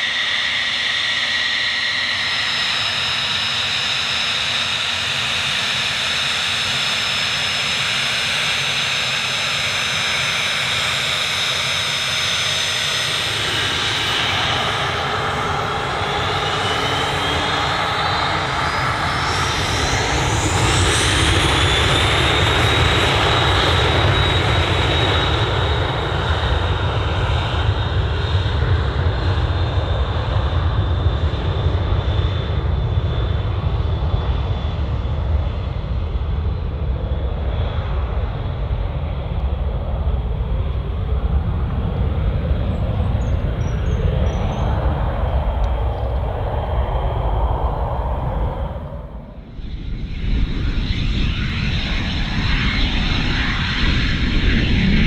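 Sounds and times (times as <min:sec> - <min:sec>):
jet engine whine: 0:00.0 - 0:55.0
low jet rumble: 0:00.0 - 0:55.0.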